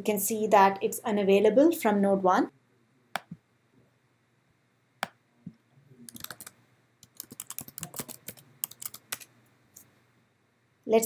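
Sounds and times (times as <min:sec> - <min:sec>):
typing on computer keyboard: 0:06.1 - 0:09.3.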